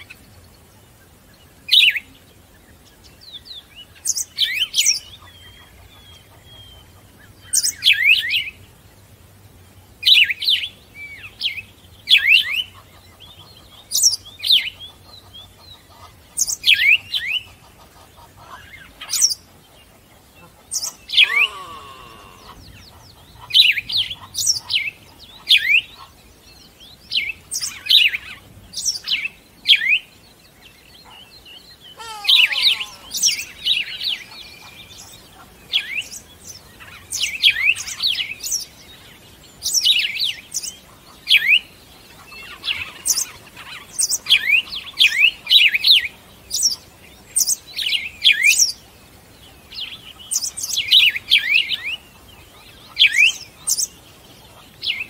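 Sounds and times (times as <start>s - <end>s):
birds chirping: 0.0s - 55.0s.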